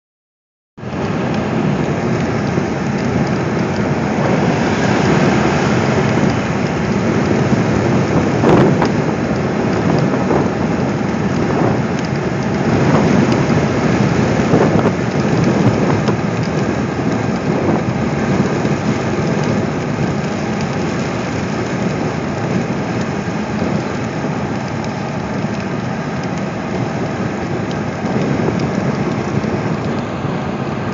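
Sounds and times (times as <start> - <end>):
road and tyre noise: 0.8 - 30.9
rain hitting windshield and roof: 0.9 - 30.9.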